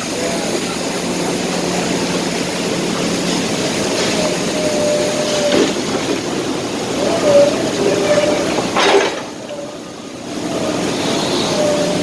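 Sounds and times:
machinery din: 0.0s - 10.9s.

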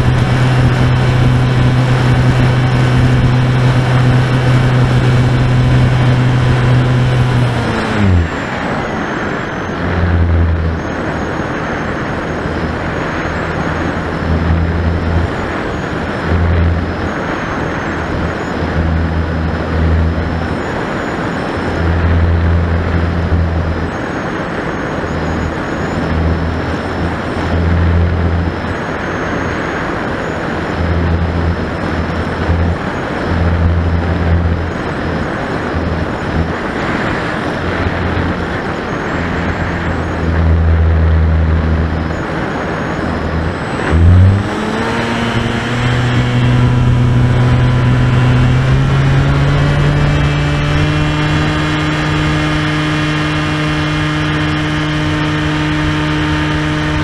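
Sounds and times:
electric motor whine: 0.0s - 57.0s
low hum: 0.0s - 57.0s.

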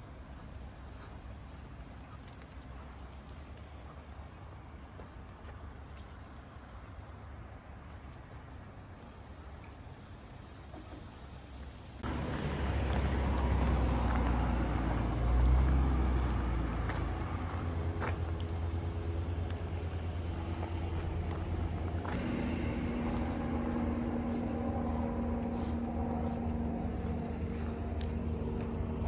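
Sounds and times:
engine rumbling: 0.0s - 29.0s
hum tone: 19.0s - 29.0s.

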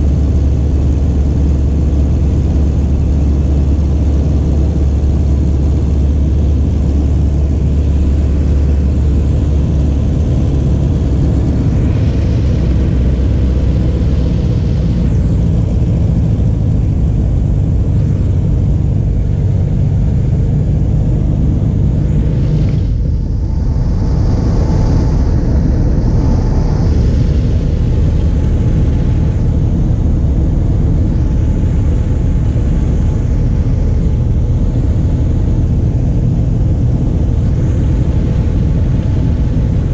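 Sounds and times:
propeller plane engine droning: 0.0s - 39.9s
wind rushing past: 9.8s - 39.9s.

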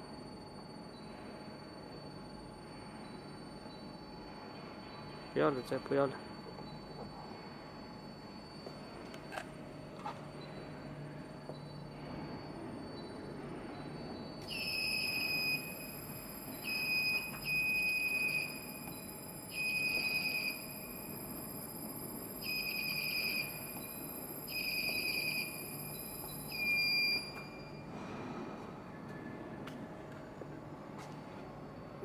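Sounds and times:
faint high whine: 0.0s - 32.0s
shrill alarm buzzer beeps: 0.8s - 28.3s.

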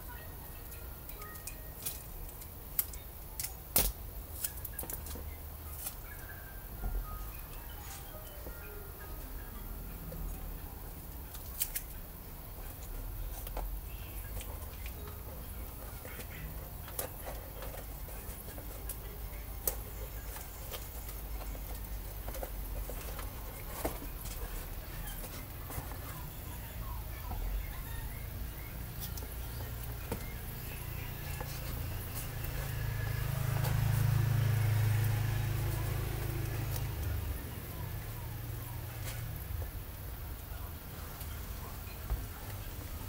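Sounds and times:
cardboard clicks and crinkles: 12.7s - 26.6s.

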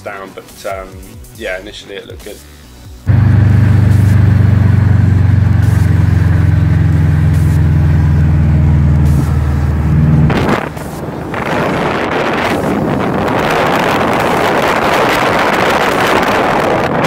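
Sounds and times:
car engine drone from cabin: 3.1s - 14.0s
wind rushing over microphone: 8.9s - 17.0s.

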